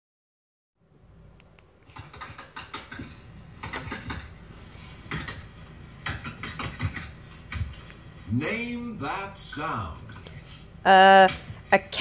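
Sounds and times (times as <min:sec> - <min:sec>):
irregular clicks and knocks: 0:01.4 - 0:04.4, 0:05.0 - 0:08.0.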